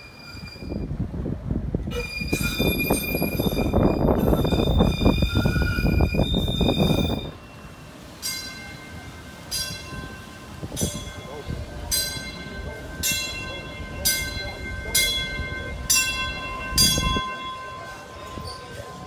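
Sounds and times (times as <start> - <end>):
tram wheels squealing: 0.0 - 1.0, 1.9 - 19.0
tram rumble: 0.0 - 19.0.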